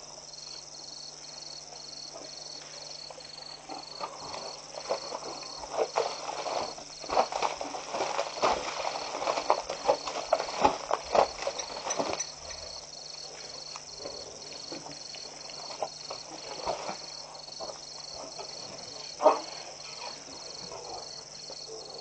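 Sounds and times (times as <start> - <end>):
elephants thudding in mud: 3.7 - 12.8.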